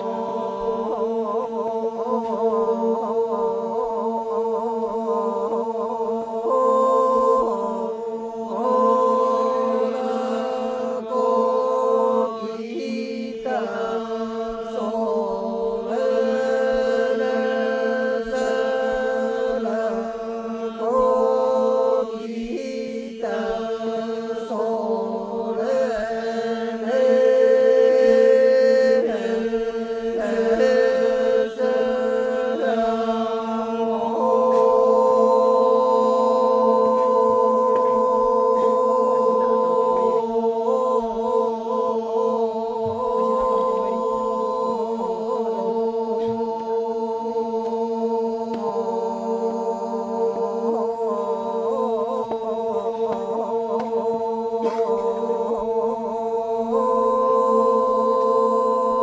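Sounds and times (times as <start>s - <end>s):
group of voices chanting: 0.0s - 59.0s.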